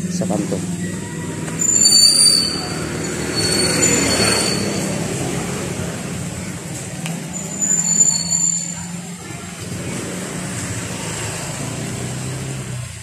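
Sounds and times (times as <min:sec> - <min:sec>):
motor scooter passing: 0:00.0 - 0:13.0
traffic: 0:00.0 - 0:13.0
high squealing tones: 0:00.9 - 0:05.4, 0:07.3 - 0:09.1.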